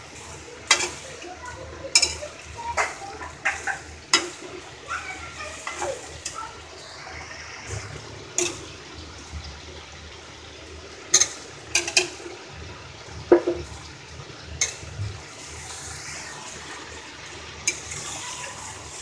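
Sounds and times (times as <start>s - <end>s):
metal spatula scraping a pan: 14.6s - 14.9s, 17.6s - 19.0s
steady hiss: 14.6s - 19.0s.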